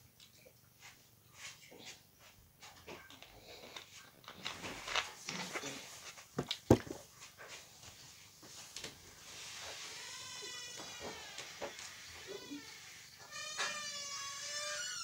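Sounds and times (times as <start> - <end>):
bottle knocking down on surface: 6.7 - 7.0.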